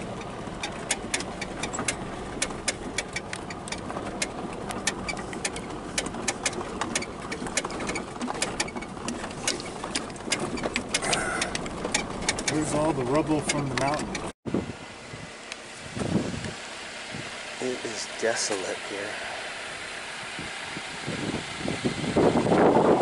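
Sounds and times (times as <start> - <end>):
clicks and rattles: 0.0 - 14.3
vehicle rumble on dirt road: 0.0 - 23.0.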